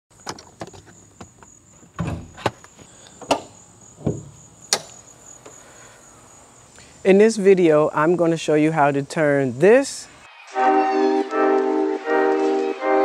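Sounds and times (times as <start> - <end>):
dull thumps: 3.2 - 5.6.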